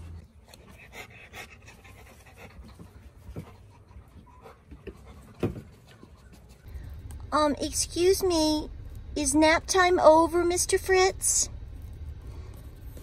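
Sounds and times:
dog panting: 0.0s - 6.7s.

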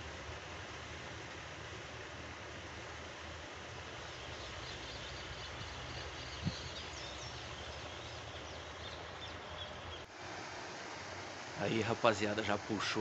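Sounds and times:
steady outdoor hiss: 0.0s - 13.0s
small birds chirping: 3.8s - 10.1s.

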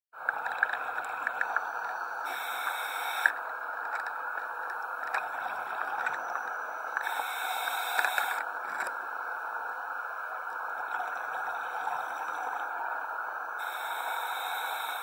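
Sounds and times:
underwater hiss with clicks: 0.4s - 4.1s, 7.0s - 8.9s, 13.6s - 15.0s
scuba regulator breathing: 2.3s - 3.3s, 7.0s - 8.4s, 13.6s - 15.0s.

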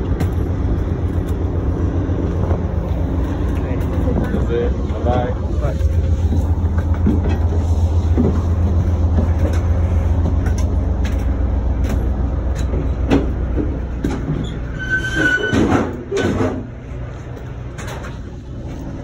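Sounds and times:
train idling rumble: 0.0s - 19.0s
footsteps on metal steps: 5.9s - 14.6s
high squeal: 14.4s - 16.3s.

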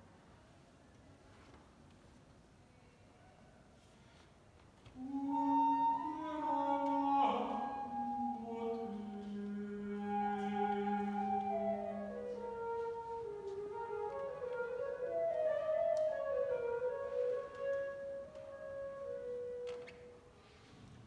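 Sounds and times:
flute melody: 5.0s - 20.6s.

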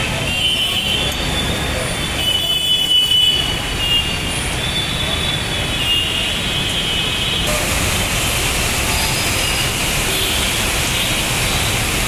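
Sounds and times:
traffic rumble on wet road: 0.0s - 12.0s.

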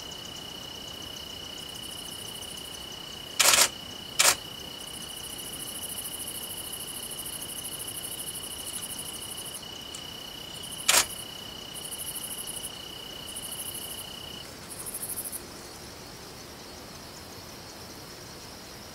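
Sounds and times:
insect high trill: 0.8s - 15.4s
sharp click: 3.4s - 4.4s, 10.8s - 11.2s
pulsed insect buzz: 3.4s - 4.5s, 10.5s - 11.3s.

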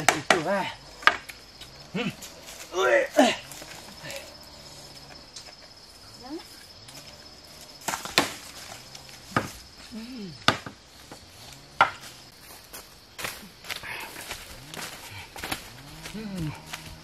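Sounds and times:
high insect whine: 0.0s - 17.0s
hoe chopping into ground: 7.7s - 9.6s, 10.4s - 12.2s.

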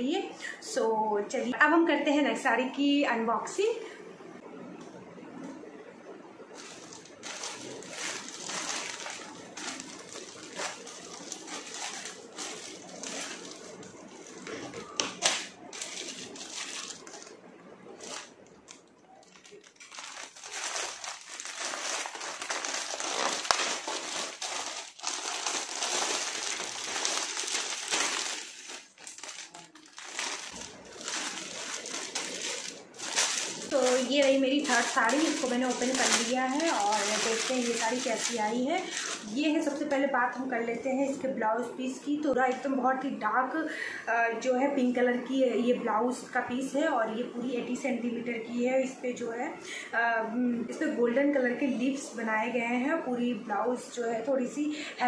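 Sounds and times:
plastic bag crinkling: 6.4s - 40.5s.

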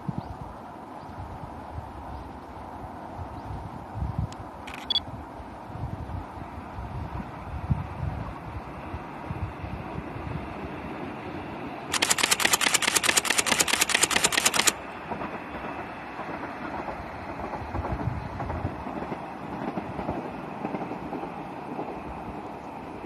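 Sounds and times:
wind noise: 0.0s - 11.0s, 16.8s - 22.5s
rapid sharp clicks: 4.7s - 5.0s, 11.9s - 14.8s.

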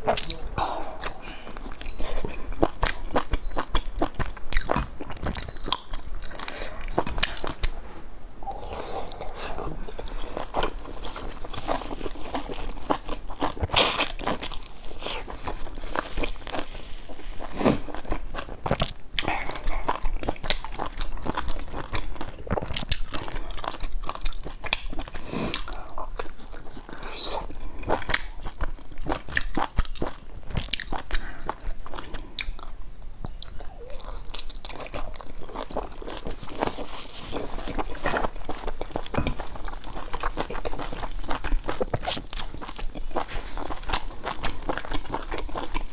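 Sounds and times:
person chewing soft buns: 0.0s - 45.9s.

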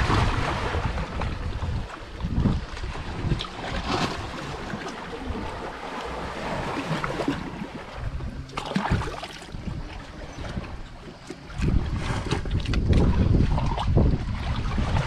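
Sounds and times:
sea washing: 0.0s - 15.0s
wind buffeting microphone: 0.0s - 15.0s.

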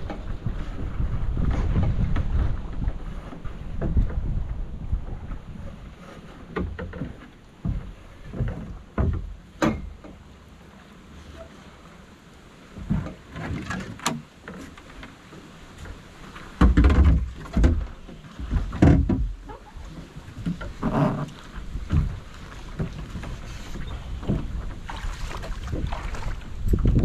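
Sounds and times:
wind buffeting microphone: 0.0s - 6.8s, 21.5s - 27.0s
water slapping against boat hull: 0.0s - 11.8s, 12.5s - 27.0s.

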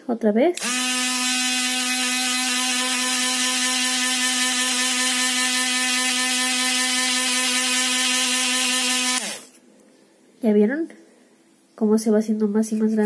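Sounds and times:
drill bit grinding stone: 0.6s - 9.6s
rotary tool whining: 0.6s - 9.6s.

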